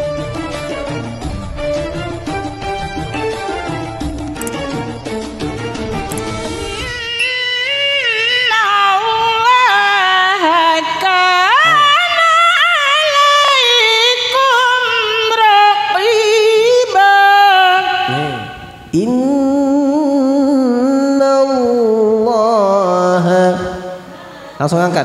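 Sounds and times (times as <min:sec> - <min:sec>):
woman reciting melodically: 0:06.9 - 0:24.6.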